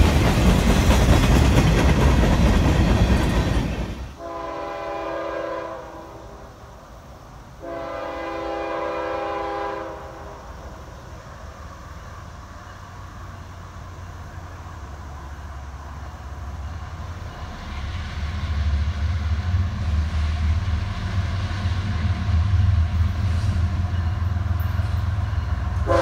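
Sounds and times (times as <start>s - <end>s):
freight cars rolling past: 0.0s - 4.2s, 10.8s - 26.0s
low rumble of train: 0.0s - 26.0s
locomotive air horn blasts: 4.2s - 6.4s, 7.6s - 10.4s, 25.8s - 26.0s.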